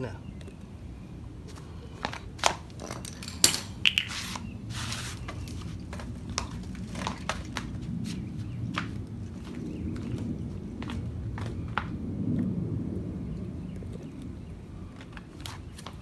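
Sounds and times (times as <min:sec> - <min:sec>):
handling clicks and knocks: 0:02.7 - 0:04.5.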